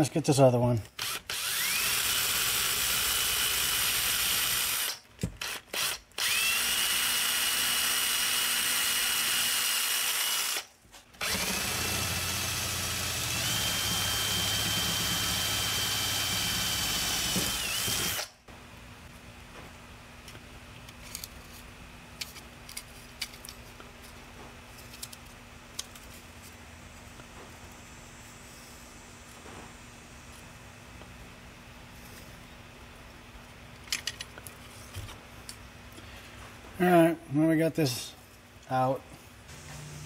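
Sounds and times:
electric drill whining: 0:01.0 - 0:18.4.

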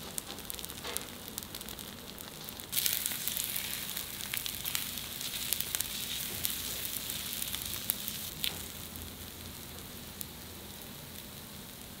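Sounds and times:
intestines sizzling: 0:00.0 - 0:12.0.

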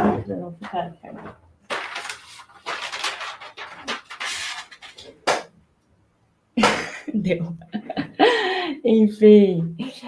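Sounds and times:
paper rustling: 0:01.6 - 0:05.5.

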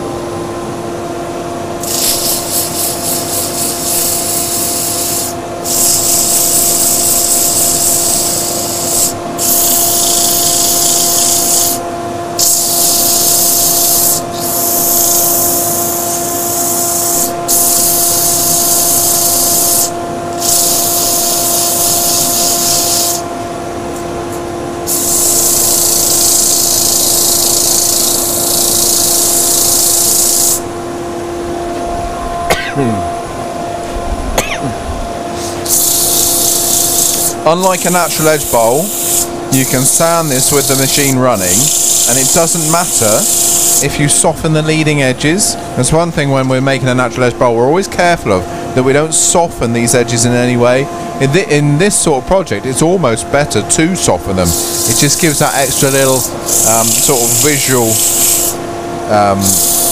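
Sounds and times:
lathe and dust extractor hum: 0:00.0 - 0:59.9
sandpaper hissing on spinning wood: 0:01.8 - 0:11.8, 0:12.4 - 0:23.3, 0:24.9 - 0:30.7, 0:35.3 - 0:44.3, 0:54.3 - 0:59.9.

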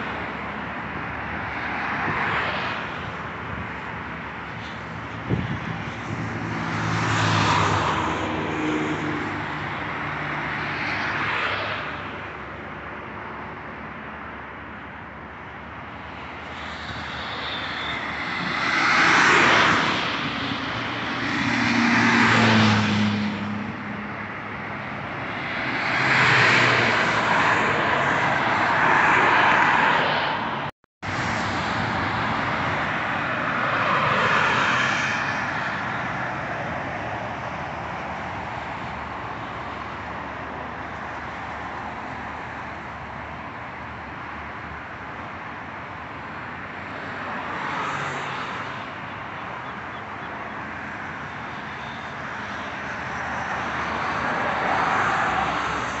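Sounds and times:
highway traffic passing: 0:00.0 - 0:56.0.

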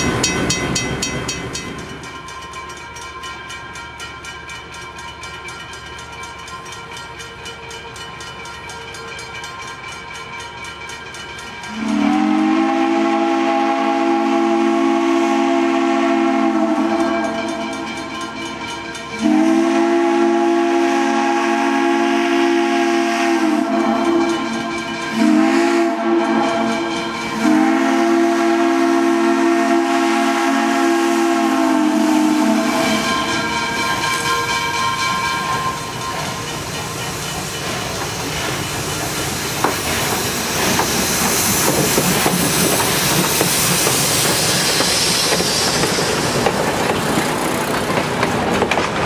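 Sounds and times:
approaching locomotive: 0:00.0 - 0:49.0
steam locomotive whistle blasts: 0:11.7 - 0:18.4, 0:19.2 - 0:36.4
steam hiss: 0:19.2 - 0:48.0.

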